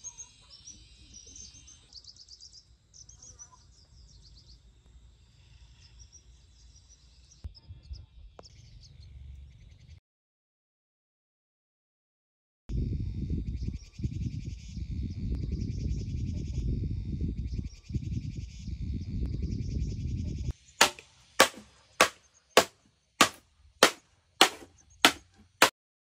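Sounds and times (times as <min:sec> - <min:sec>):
pulsing insect-like chirr: 0:00.0 - 0:03.2
hand tool striking wood: 0:20.8 - 0:25.8.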